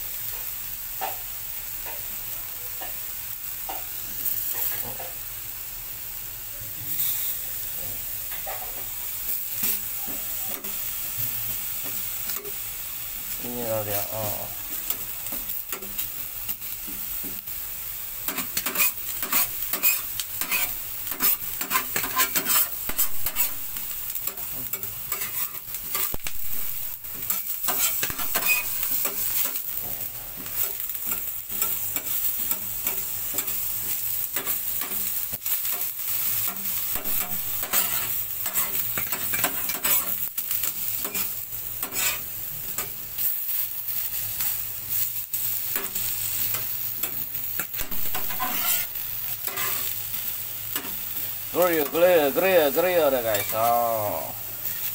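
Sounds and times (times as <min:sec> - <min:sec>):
vegetables sizzling in oil: 0:00.0 - 0:54.9
crackles and pops: 0:18.2 - 0:42.0, 0:43.9 - 0:49.9.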